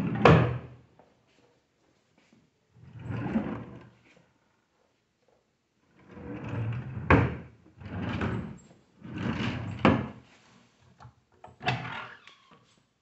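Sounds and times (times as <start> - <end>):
wooden drawers sliding: 6.1 - 10.2.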